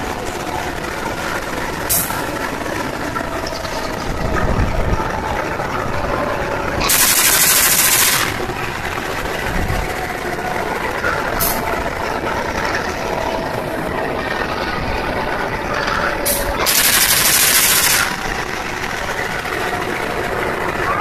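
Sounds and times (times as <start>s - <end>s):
locomotive engine running: 0.0s - 21.0s
compressed air hissing: 6.8s - 8.5s, 16.2s - 18.2s.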